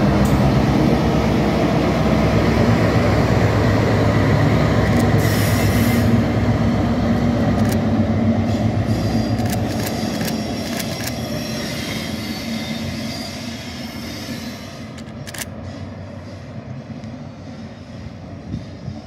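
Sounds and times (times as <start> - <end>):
diesel locomotive engine drone: 0.0 - 19.0
wheels clicking over rails: 7.4 - 7.9, 9.2 - 11.6
high wheel squeal: 8.8 - 16.5.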